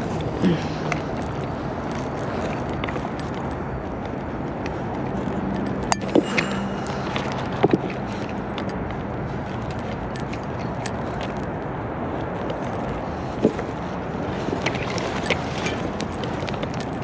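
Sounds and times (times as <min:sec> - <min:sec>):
urban traffic noise: 0:00.0 - 0:17.0
river rushing: 0:05.2 - 0:10.7.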